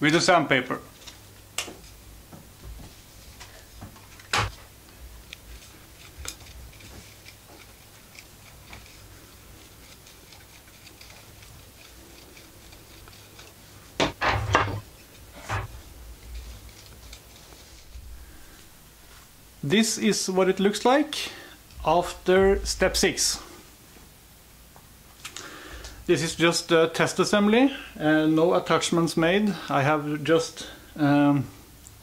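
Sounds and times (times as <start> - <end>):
knife shaving wood: 4.6 - 14.1, 14.8 - 19.1.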